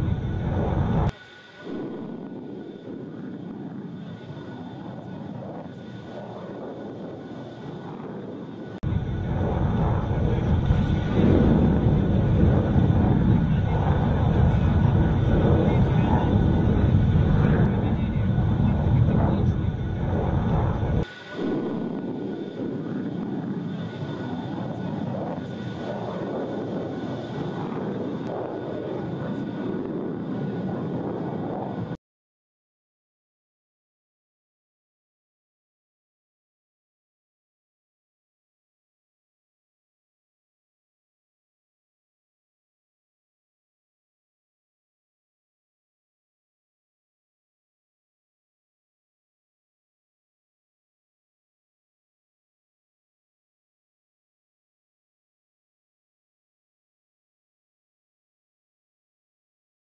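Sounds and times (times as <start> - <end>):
deeper engine roar: 0.0 - 32.0
faint high whine: 0.0 - 32.0
engine roar: 8.9 - 31.9.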